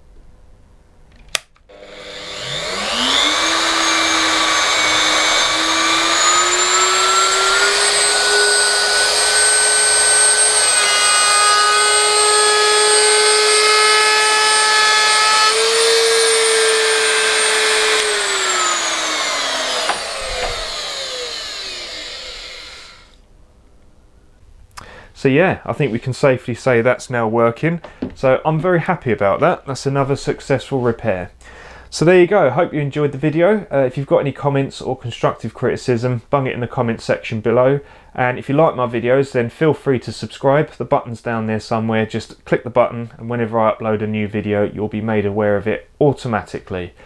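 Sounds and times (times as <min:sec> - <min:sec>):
trimmer switch click: 0:01.2 - 0:01.6, 0:19.8 - 0:20.7
trimmer motor whine: 0:01.7 - 0:23.2.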